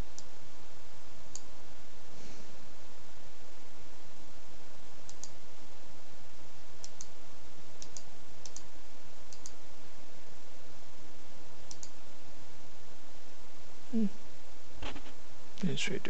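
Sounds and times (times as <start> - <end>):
microphone hiss: 0.0 - 16.0
computer mouse clicks: 0.1 - 0.3, 1.3 - 1.5, 5.0 - 5.4, 6.8 - 7.2, 7.8 - 8.7, 9.3 - 9.6, 11.6 - 12.0.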